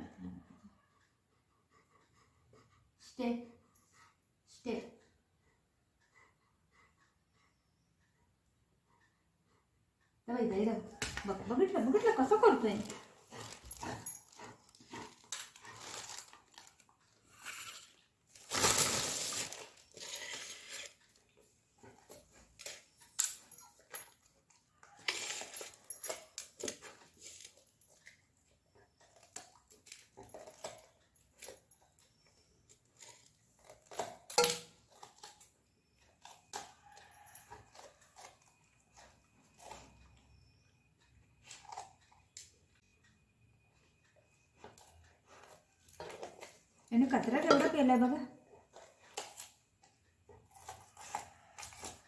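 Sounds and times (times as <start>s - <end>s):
dog chewing and crunching: 11.2s - 40.4s, 41.3s - 42.4s, 48.5s - 52.0s.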